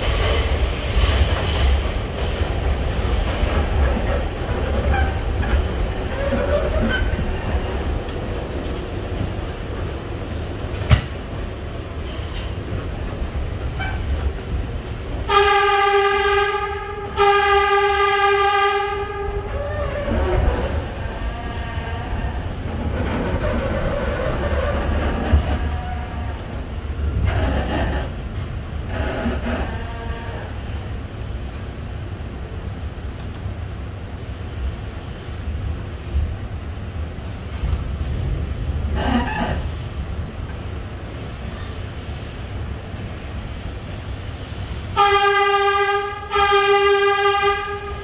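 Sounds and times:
subway train rumbling on rails: 0:00.0 - 0:48.0
train horn blasts: 0:15.2 - 0:19.5, 0:44.9 - 0:48.0.

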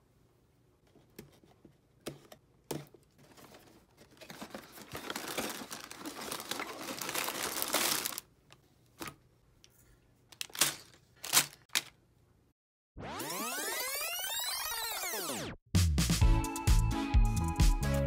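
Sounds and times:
cardboard tearing: 0:04.1 - 0:08.2.

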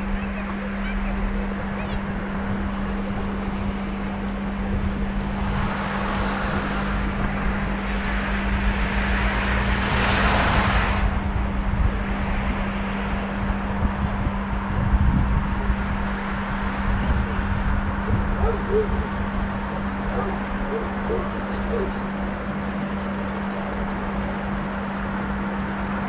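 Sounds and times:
road vehicles passing: 0:00.0 - 0:26.0
steady low hum: 0:00.0 - 0:26.0.

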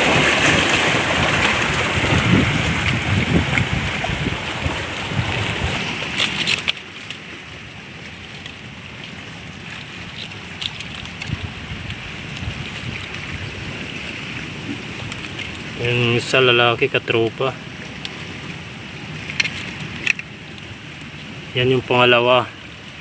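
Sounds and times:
wind buffeting microphone: 0:00.0 - 0:06.6, 0:10.4 - 0:16.3
waves on rocky shore: 0:00.0 - 0:23.0.

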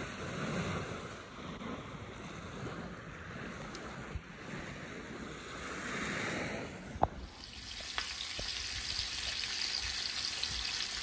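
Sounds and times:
sea noise: 0:00.0 - 0:11.0
wind: 0:00.0 - 0:11.0
fish sizzling in frying pan: 0:07.2 - 0:11.0.

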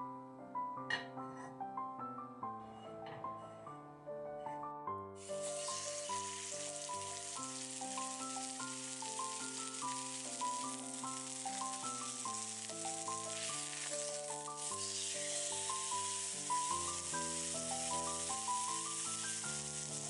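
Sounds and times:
steak sizzling in skillet: 0:05.2 - 0:20.0.

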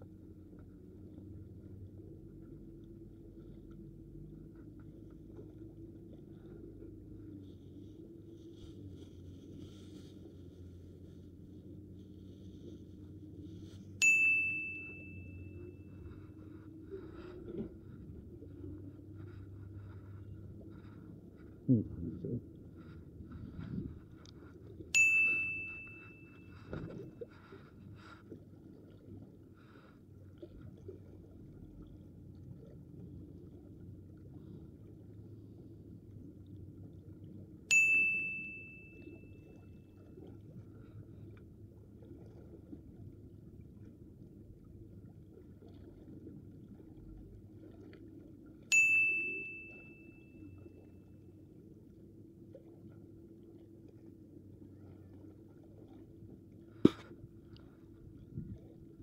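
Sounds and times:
bell-like ding: 0:14.0 - 0:15.8, 0:25.0 - 0:26.7, 0:37.7 - 0:39.4, 0:48.7 - 0:50.6.

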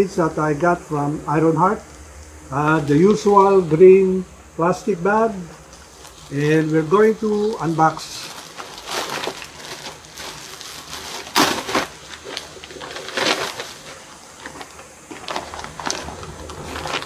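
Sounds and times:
paper bag rustling: 0:05.8 - 0:17.0
plastic bag tearing and crinkling: 0:05.9 - 0:17.0.

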